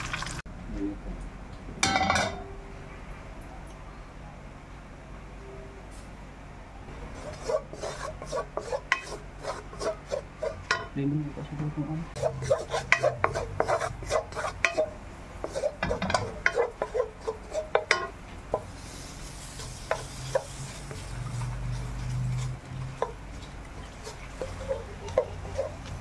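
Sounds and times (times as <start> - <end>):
butter sizzling: 0.0 - 0.4, 7.1 - 10.9, 12.2 - 26.0
wooden spoon scraping pan: 7.1 - 10.9, 12.2 - 18.7, 19.3 - 26.0.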